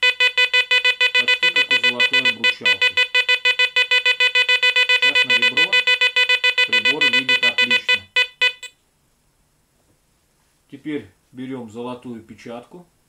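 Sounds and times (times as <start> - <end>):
metal detector rapid beeping: 0.0 - 8.7.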